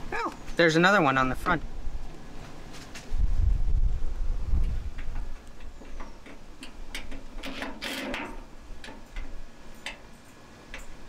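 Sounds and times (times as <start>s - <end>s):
screwdriver clicking on sheet metal: 5.0s - 10.1s
screwdriver scrape: 7.0s - 8.4s.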